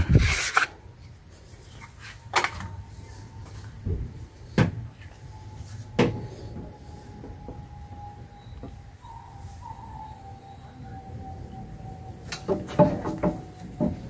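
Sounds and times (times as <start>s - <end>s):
low steady hum: 0.0s - 14.0s.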